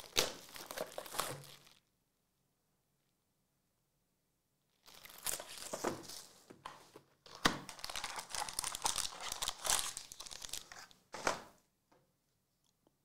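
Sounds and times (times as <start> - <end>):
card packaging crinkling: 0.0 - 1.8, 4.8 - 6.3, 7.3 - 11.2.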